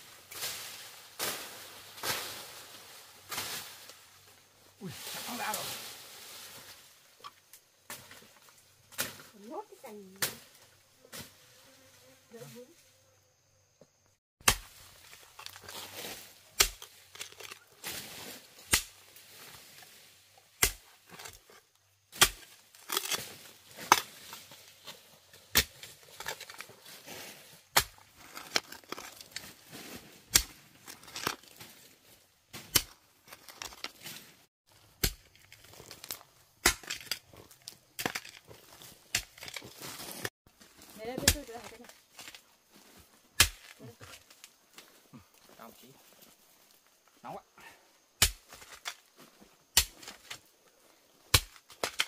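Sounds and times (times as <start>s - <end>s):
earth scraping and crumbling: 0.0s - 11.8s, 14.4s - 47.1s, 48.2s - 52.0s
hoe chopping into soil: 14.4s - 19.0s, 20.6s - 21.4s, 22.1s - 24.4s, 25.4s - 26.7s, 27.7s - 31.8s, 32.5s - 40.3s, 43.4s - 43.8s, 48.2s - 49.1s, 49.7s - 50.4s, 51.3s - 52.0s.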